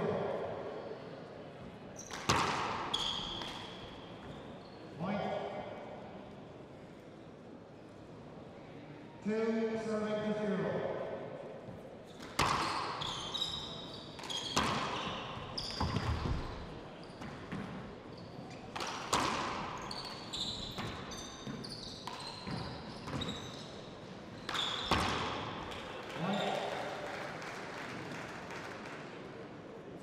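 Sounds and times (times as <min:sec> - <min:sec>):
shoes squeaking on wooden floor: 0:19.8 - 0:25.0.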